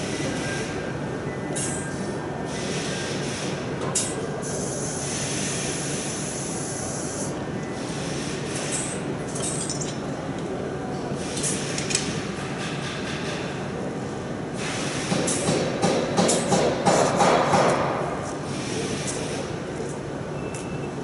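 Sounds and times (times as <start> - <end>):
factory machinery noise: 0.0 - 21.0
pneumatic air hiss: 2.5 - 9.0, 11.2 - 11.9, 14.6 - 17.2, 18.4 - 19.5.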